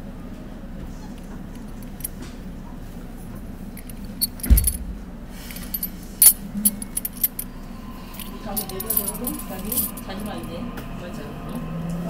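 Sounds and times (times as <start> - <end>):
subway train rumble: 0.0 - 12.0
dull knock: 4.4 - 5.4.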